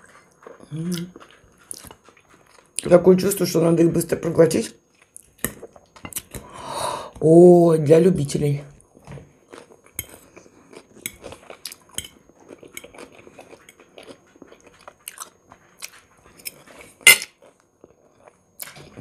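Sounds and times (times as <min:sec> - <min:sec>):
chewing and biting: 0:00.0 - 0:02.9, 0:09.0 - 0:19.0.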